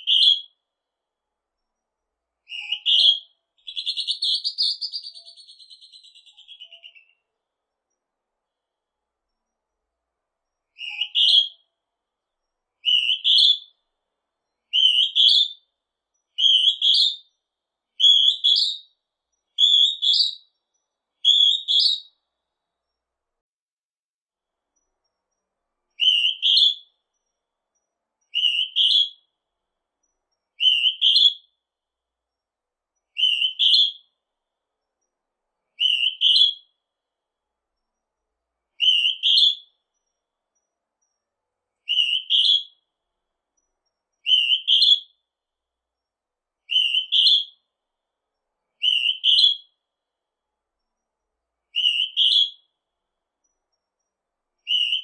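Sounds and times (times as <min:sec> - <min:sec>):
bird shrill two-note whistle: 0:04.9 - 0:07.1.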